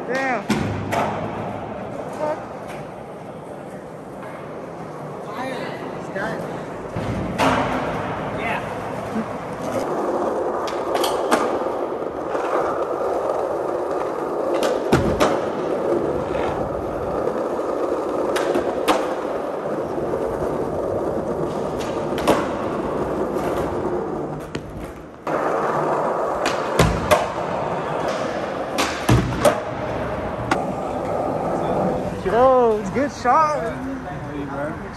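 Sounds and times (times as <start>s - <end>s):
skateboard wheels rolling on concrete: 0.0s - 34.9s
skateboard popping and landing clacks: 10.6s - 16.9s, 17.6s - 19.6s, 21.4s - 30.7s.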